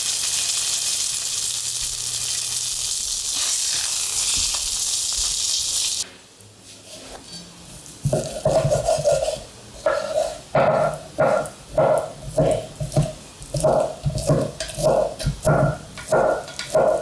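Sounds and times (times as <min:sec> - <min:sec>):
chicken sizzling in frying pan: 0:00.0 - 0:06.0.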